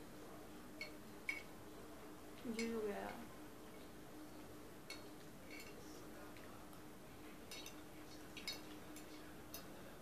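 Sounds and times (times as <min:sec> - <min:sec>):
faint steady hum: 0:00.0 - 0:10.0
spoons clinking against bowls: 0:00.8 - 0:01.5, 0:04.8 - 0:06.5, 0:07.4 - 0:09.8.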